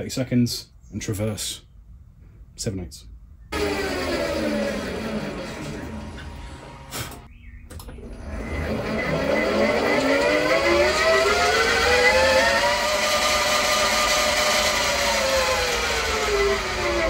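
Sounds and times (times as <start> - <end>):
milling machine motor whine: 3.5 - 17.0.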